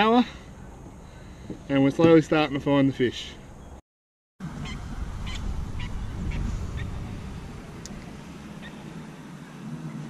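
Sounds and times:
wind rumbling on microphone: 4.4 - 10.0.

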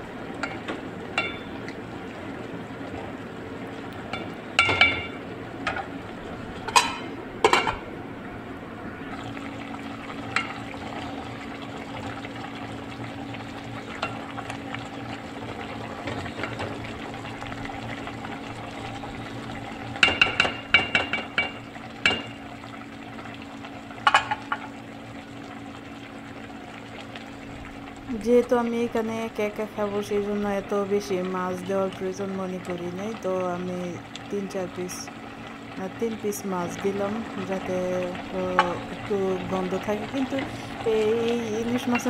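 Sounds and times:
food sizzling in a pot: 0.0 - 7.9, 9.0 - 42.0
steady low hum: 0.0 - 42.0.

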